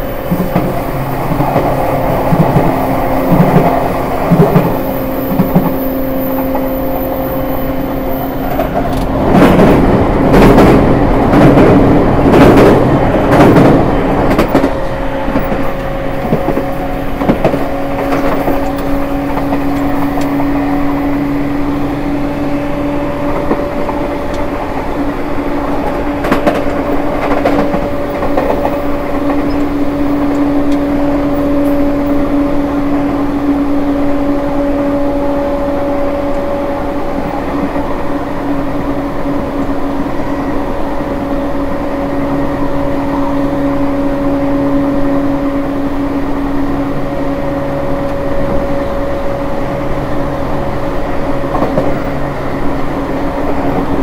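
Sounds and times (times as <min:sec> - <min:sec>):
train motor two-tone hum: 0:00.0 - 0:40.7
wheel and rail noise: 0:00.0 - 0:44.4, 0:45.6 - 0:54.0.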